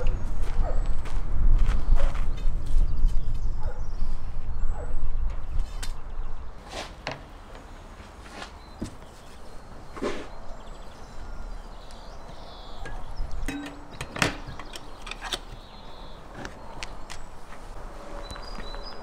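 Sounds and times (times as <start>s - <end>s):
wire grill basket clinking: 12.8s - 15.5s.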